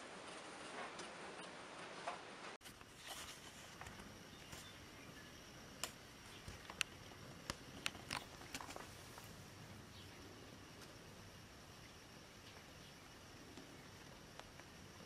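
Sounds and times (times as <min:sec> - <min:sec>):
low hiss: 0:00.0 - 0:15.0
kittens suckling clicks and smacks: 0:05.8 - 0:08.9.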